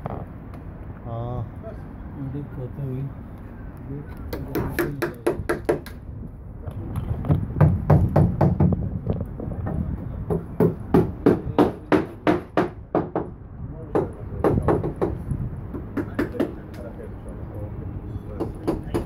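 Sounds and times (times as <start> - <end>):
hammer blows on timber: 4.3 - 6.0, 13.9 - 16.8.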